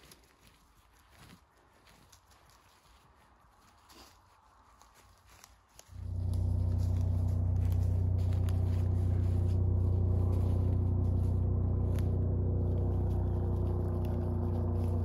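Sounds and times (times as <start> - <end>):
small chainsaw running: 5.9 - 15.0.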